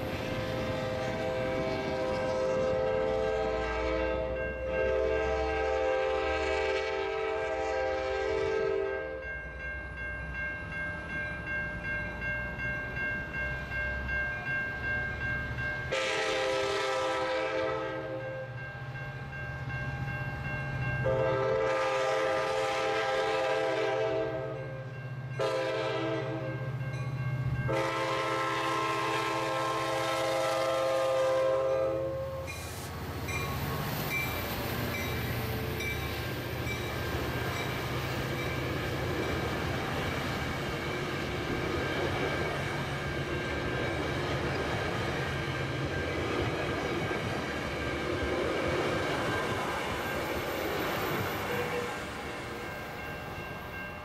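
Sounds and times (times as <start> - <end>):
crossing bell ringing: 0.0 - 54.0
train air horn blasts: 0.4 - 9.2, 15.9 - 18.2, 21.0 - 24.8, 25.4 - 26.6, 27.7 - 32.7, 51.4 - 52.1
locomotive engine hum: 19.1 - 54.0.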